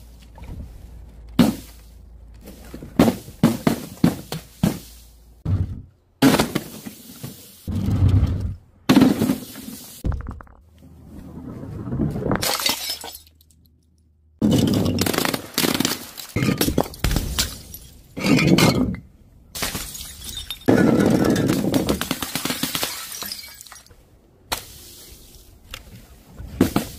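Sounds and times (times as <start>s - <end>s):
glass jar shattering: 12.4s - 13.6s, 15.8s - 19.0s, 19.6s - 21.6s, 22.8s - 23.9s.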